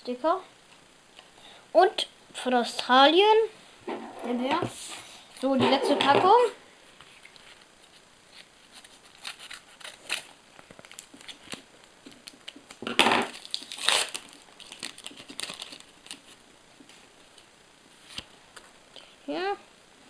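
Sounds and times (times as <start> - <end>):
wrapper crinkling: 7.2 - 16.4
paper packet tearing: 8.4 - 16.4.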